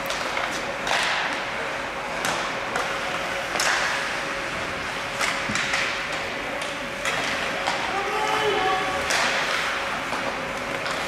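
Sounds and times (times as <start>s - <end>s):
hockey sticks and puck clacking: 0.0s - 1.5s, 2.1s - 4.3s, 5.1s - 11.0s
skate blades scraping ice: 2.2s - 11.0s.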